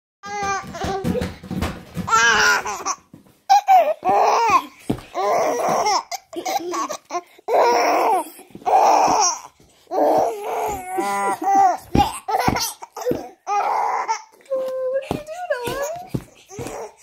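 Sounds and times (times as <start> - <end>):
toddler laughing: 2.1 - 9.4, 10.0 - 14.2.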